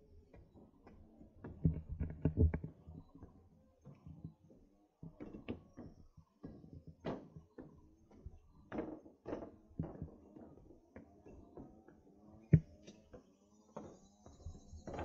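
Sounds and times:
footsteps knocking and scuffing: 0:04.3 - 0:11.8.

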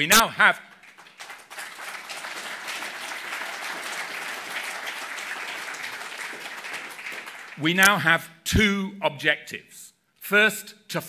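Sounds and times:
audience clapping: 0:00.1 - 0:08.0.

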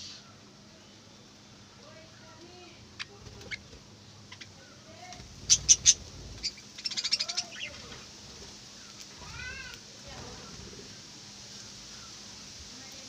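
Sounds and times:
soft bird chatter: 0:00.0 - 0:13.0
budgerigars chirping: 0:03.0 - 0:03.7, 0:04.3 - 0:04.6, 0:05.3 - 0:07.9.

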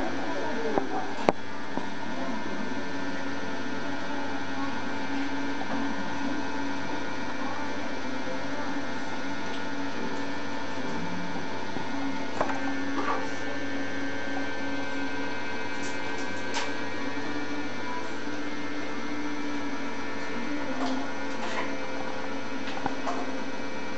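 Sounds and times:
electrical hum: 0:00.0 - 0:23.9.

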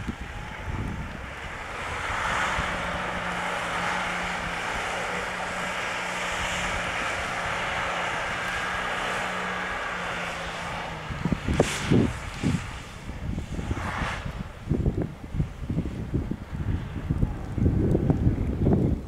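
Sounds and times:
suv engine drone: 0:00.0 - 0:19.0.

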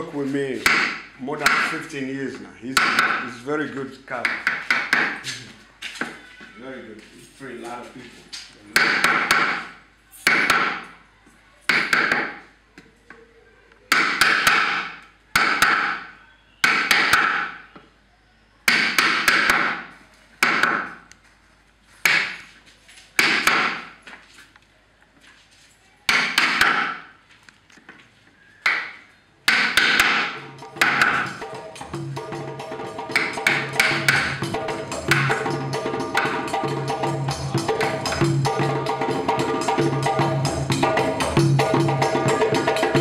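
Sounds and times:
hammer knocking chisel into wood: 0:00.6 - 0:01.9, 0:02.7 - 0:03.3, 0:04.2 - 0:05.2, 0:08.7 - 0:10.9, 0:11.7 - 0:12.4, 0:13.9 - 0:17.6, 0:18.7 - 0:21.0, 0:22.0 - 0:22.4, 0:23.2 - 0:23.9, 0:26.1 - 0:27.1, 0:28.6 - 0:31.4.

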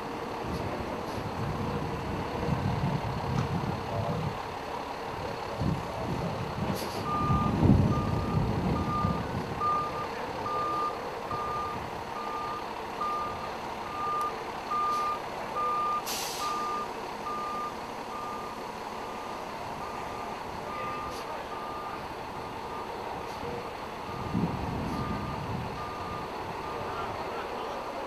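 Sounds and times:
diesel engine rumble: 0:00.0 - 0:28.0
reversing alarm beeping: 0:07.0 - 0:22.9, 0:24.0 - 0:26.9
short hiss: 0:16.0 - 0:16.6.

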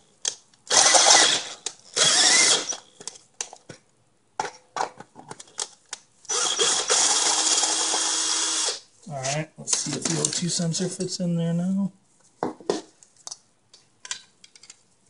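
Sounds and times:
power drill boring metal: 0:00.7 - 0:02.8, 0:06.3 - 0:08.8.

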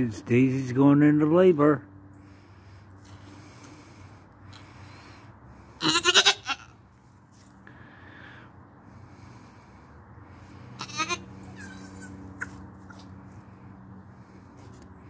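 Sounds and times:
goat bleating: 0:05.8 - 0:06.8, 0:10.8 - 0:12.6.

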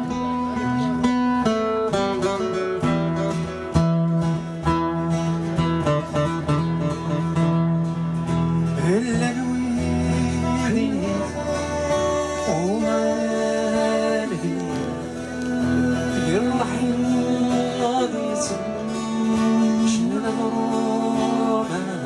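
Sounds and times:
acoustic guitars playing: 0:00.0 - 0:22.0
man singing: 0:08.6 - 0:22.0.

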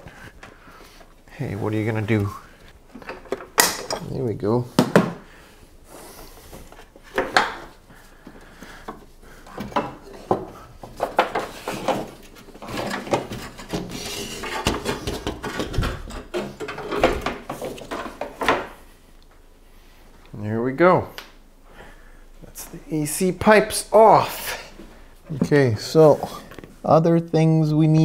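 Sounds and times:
metal pipes clinking and scraping: 0:09.0 - 0:18.4.

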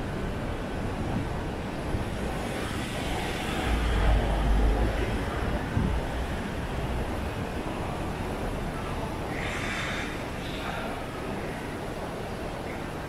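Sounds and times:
city street noise: 0:00.0 - 0:13.0
heavy vehicle rumble passing: 0:02.0 - 0:08.5.

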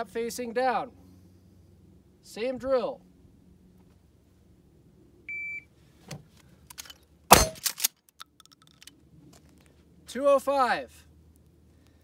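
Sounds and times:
shotgun blast: 0:07.3 - 0:07.8.

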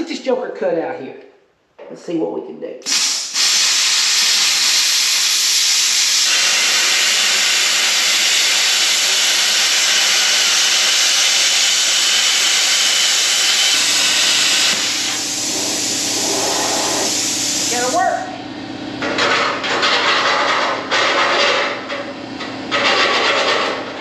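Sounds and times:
plasma torch hissing: 0:02.8 - 0:18.0.

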